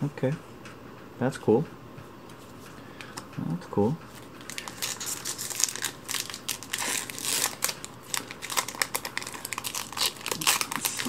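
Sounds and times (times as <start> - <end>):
foil wrapper crinkling: 4.2 - 11.0.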